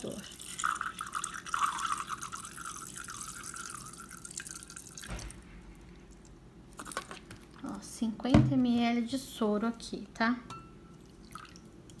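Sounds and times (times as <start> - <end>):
liquid trickling into plastic cup: 0.0 - 7.6, 11.0 - 12.0.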